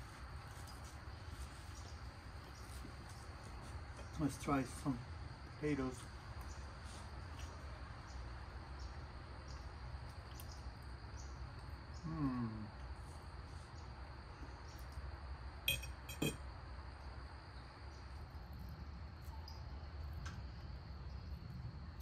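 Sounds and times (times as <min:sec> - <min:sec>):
insects chirping: 0:00.0 - 0:22.0
outdoor background noise: 0:00.0 - 0:22.0
man humming: 0:12.0 - 0:12.8
fork clinking on ceramic plate: 0:15.7 - 0:16.4.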